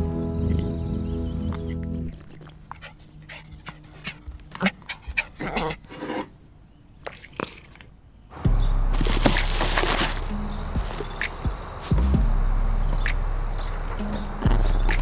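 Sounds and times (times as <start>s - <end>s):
dog-like panting: 2.6s - 5.9s.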